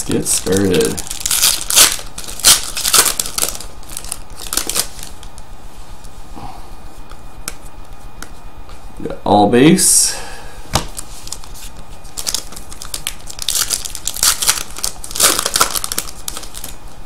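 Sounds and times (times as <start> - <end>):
foil wrapper tearing and crinkling: 0.1 - 5.3, 11.2 - 16.8.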